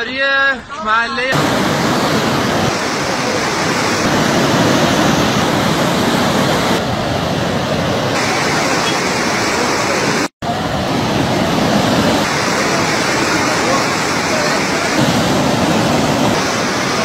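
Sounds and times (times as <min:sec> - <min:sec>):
floodwater rushing: 0:01.3 - 0:17.0.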